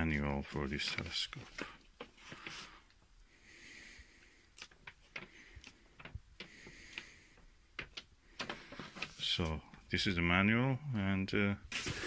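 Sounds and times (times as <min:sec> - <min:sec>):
paper pages rustling: 0:00.6 - 0:02.8, 0:11.7 - 0:12.0
faint breaths: 0:01.4 - 0:09.8.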